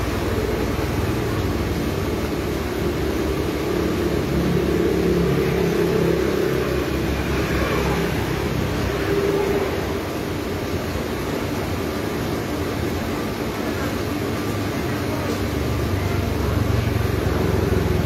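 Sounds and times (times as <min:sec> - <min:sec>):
vehicle engine running: 0:00.0 - 0:10.5, 0:15.7 - 0:18.0
road noise: 0:00.0 - 0:18.0.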